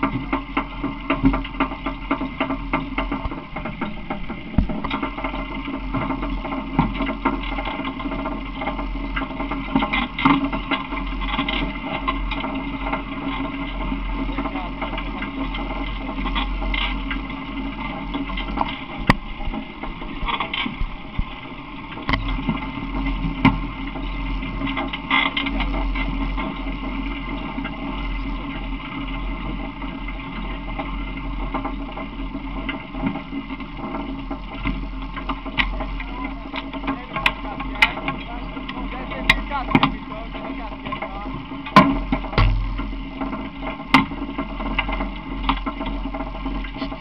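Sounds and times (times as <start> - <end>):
wind rumbling on microphone: 0.0 - 40.1
sharp knocks: 42.4 - 43.2.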